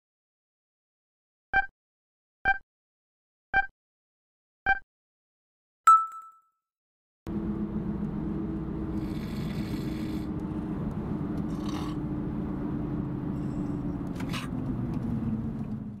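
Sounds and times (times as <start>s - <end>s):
car idling hum: 7.3s - 16.0s.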